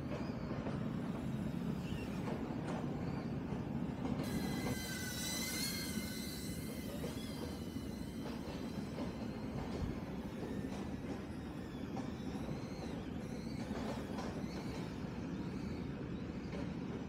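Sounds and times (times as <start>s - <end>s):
drone propellers whining: 4.2s - 9.8s.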